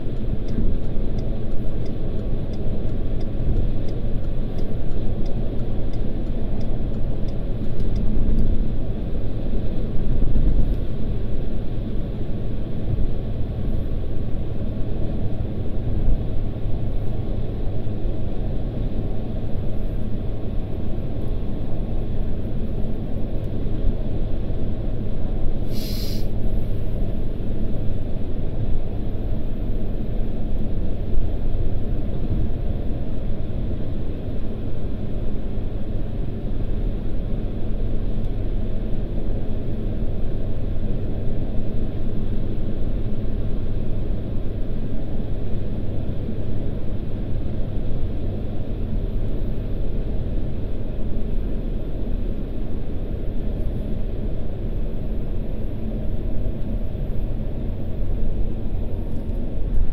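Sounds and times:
car road and engine rumble: 0.0 - 59.9
short hiss: 25.7 - 26.4.

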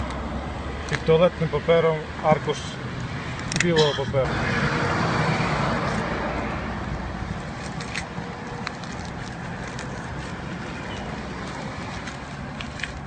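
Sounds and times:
paper and plastic wrapping rustling: 7.5 - 13.0
small crackles: 7.5 - 13.0.

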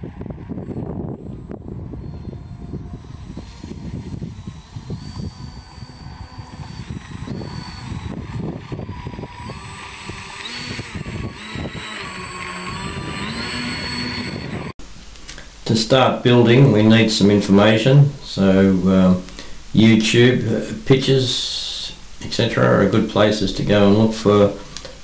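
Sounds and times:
model plane motors whining: 0.0 - 14.8
wind rumbling on microphone: 0.0 - 14.8.

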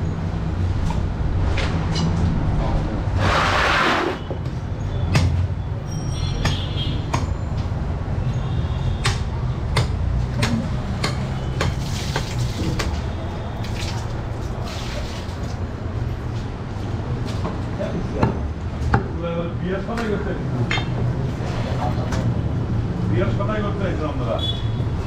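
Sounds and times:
knife chopping meat on wood: 9.0 - 13.0.

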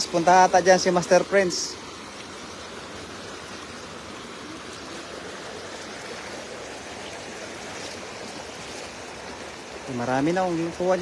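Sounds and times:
shallow water flowing: 0.0 - 11.0.

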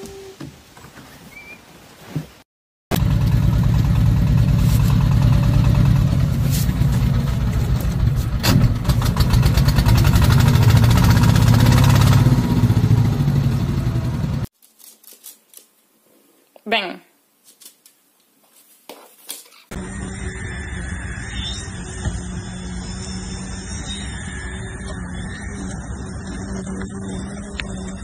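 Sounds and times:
engine idling: 2.9 - 14.5.

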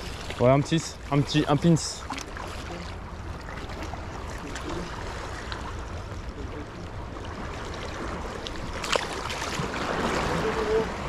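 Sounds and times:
waves lapping among rocks: 0.0 - 11.0.

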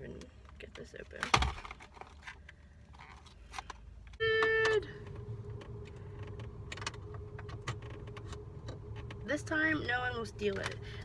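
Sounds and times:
low hum: 4.1 - 11.0.

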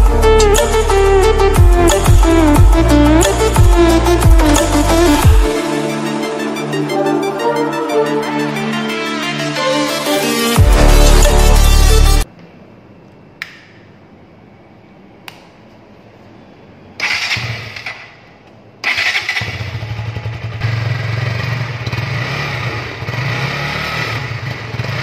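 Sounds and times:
motorcycle engine starting and running: 17.0 - 25.0.

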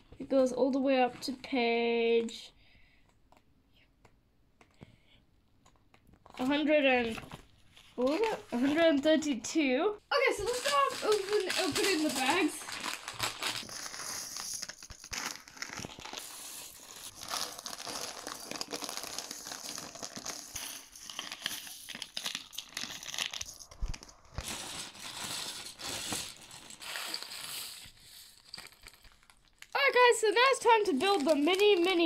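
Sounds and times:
plastic bags crinkling: 6.2 - 9.1, 10.1 - 32.0.

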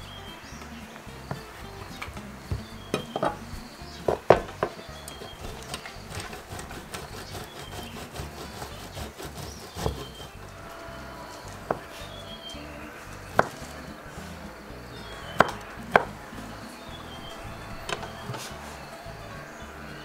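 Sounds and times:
background music: 0.0 - 20.0
cheese scraped across metal grater: 5.1 - 12.1.

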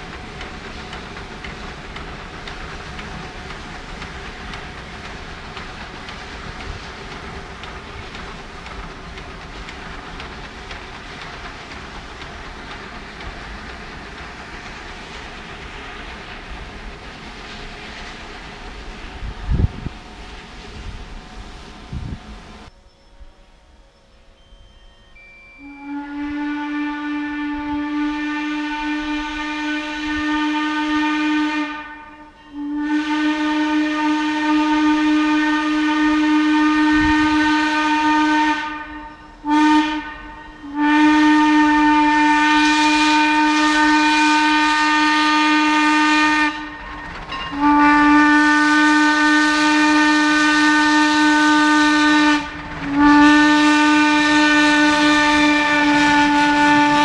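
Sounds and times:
steam hissing: 0.0 - 22.7, 24.3 - 57.0
steam locomotive whistle: 24.3 - 57.0.

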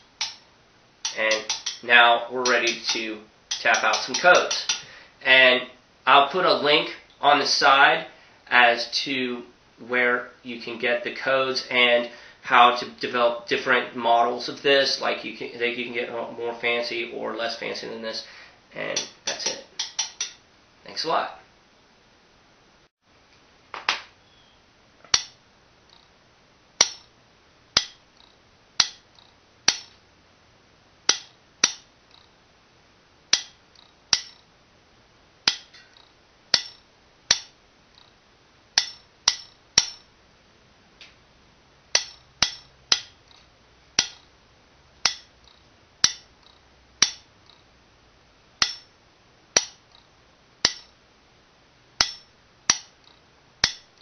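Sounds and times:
telegraph clicking: 2.4 - 4.8.

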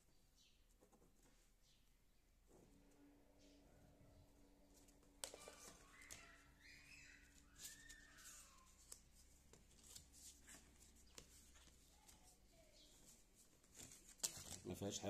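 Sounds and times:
paper rustling and pen scratching: 0.7 - 1.6, 4.7 - 15.0
whistle-like sounds: 5.9 - 8.7.

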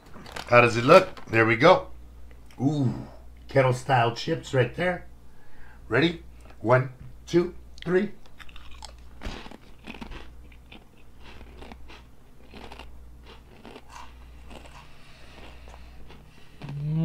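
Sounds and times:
potato chips crunching: 8.2 - 16.8.

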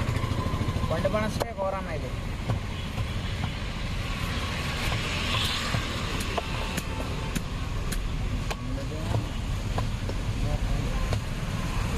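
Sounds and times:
traffic rumble: 0.0 - 11.9
cleaver chopping on wooden block: 2.2 - 3.8, 4.7 - 10.3, 11.0 - 11.6.

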